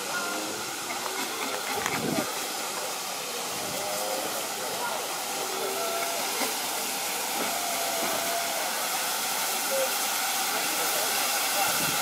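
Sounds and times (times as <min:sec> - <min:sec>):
steam hissing: 0:00.0 - 0:12.0
steam locomotive approaching: 0:00.0 - 0:12.0.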